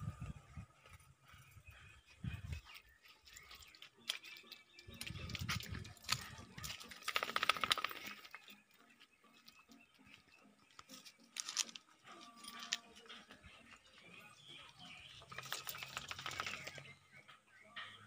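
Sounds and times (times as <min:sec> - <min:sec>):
footsteps on gravel: 0:02.6 - 0:14.9.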